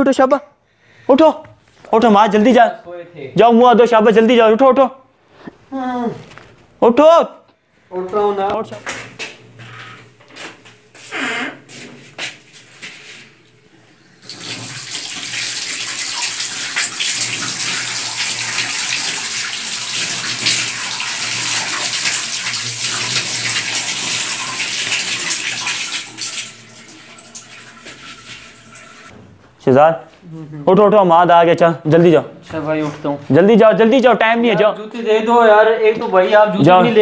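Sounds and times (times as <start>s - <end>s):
tap water running: 14.1s - 29.1s
water splashing from face washing: 14.2s - 29.1s.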